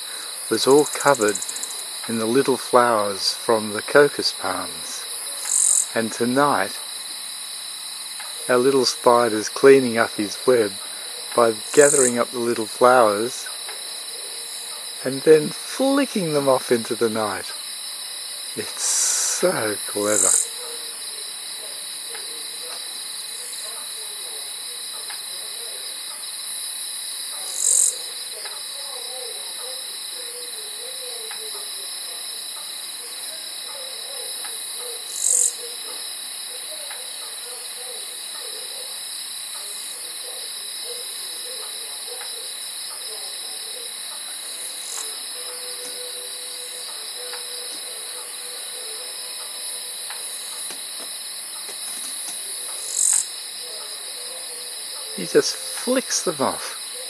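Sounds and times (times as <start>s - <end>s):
faint steady insect note: 0.0s - 57.0s
insects trilling: 0.0s - 57.0s
faint low wavering calls: 32.9s - 50.7s.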